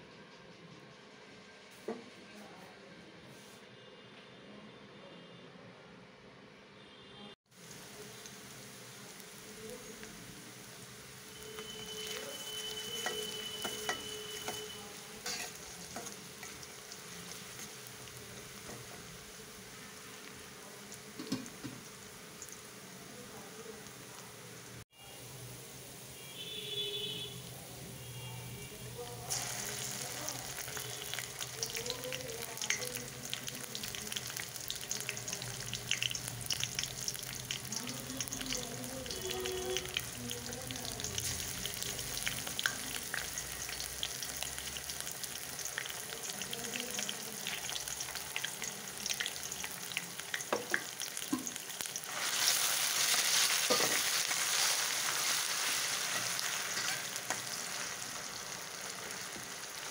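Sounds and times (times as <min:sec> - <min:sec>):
onions sizzling in hot oil: 0:07.4 - 0:59.9
spatula stirring in wok: 0:11.4 - 0:18.7, 0:50.2 - 0:58.3.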